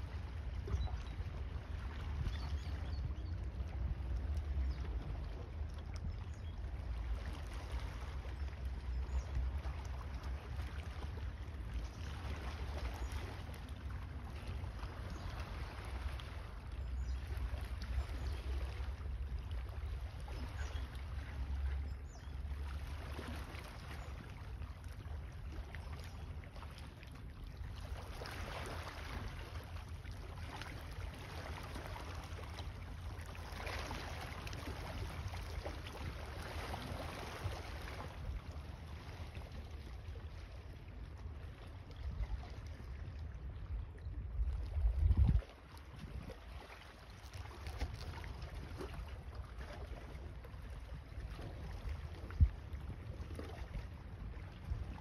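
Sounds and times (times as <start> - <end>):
wind buffeting microphone: 44.2 - 46.3.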